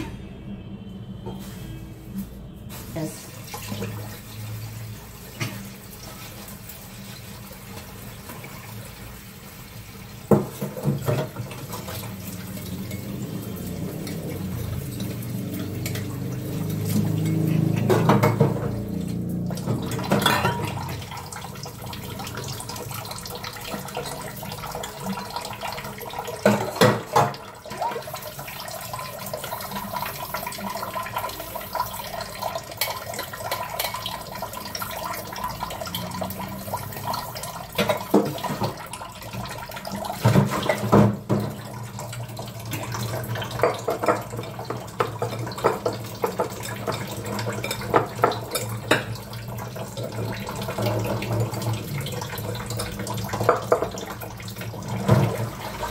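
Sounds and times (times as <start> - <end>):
tap running into sink: 10.2 - 28.1, 37.6 - 55.9
utensils knocking against sink: 10.3 - 11.9, 15.8 - 18.9, 19.6 - 21.1, 40.2 - 41.6, 42.7 - 49.3.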